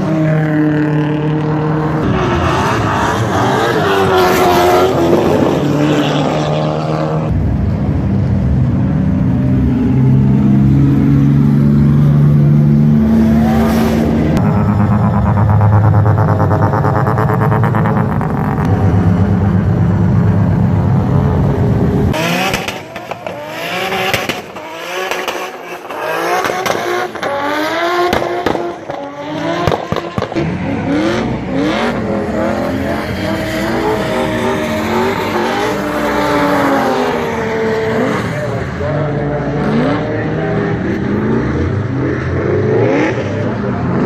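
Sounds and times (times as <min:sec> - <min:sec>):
drift car engines revving: 0:00.0 - 0:07.9, 0:08.6 - 0:44.0
low drone: 0:07.3 - 0:22.2.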